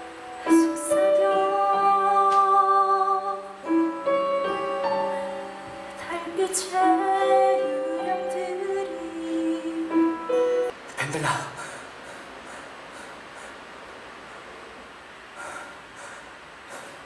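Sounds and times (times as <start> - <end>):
piano: 0.0 - 15.0
woman singing: 0.4 - 4.6, 5.9 - 10.6.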